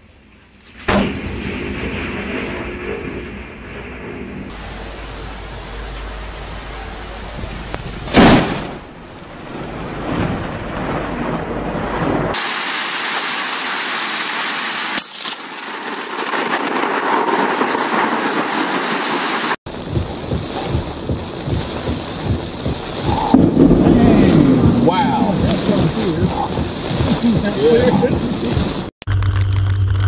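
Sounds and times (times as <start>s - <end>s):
sharp crack: 0.6s - 4.6s, 7.7s - 9.0s, 10.0s - 18.8s, 19.4s - 30.0s
thunderclap: 0.7s - 12.9s, 15.4s - 28.9s
rumbling thunder: 0.8s - 12.4s, 15.8s - 18.8s, 19.7s - 28.9s
heavy rain hissing: 4.5s - 8.9s, 9.8s - 15.0s, 16.7s - 28.9s
rain and wind on windscreen: 4.5s - 28.9s.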